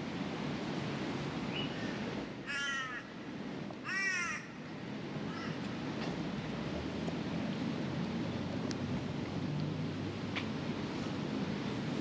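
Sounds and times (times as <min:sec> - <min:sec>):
crow cawing: 0:02.5 - 0:03.1, 0:03.8 - 0:04.6, 0:05.3 - 0:05.6.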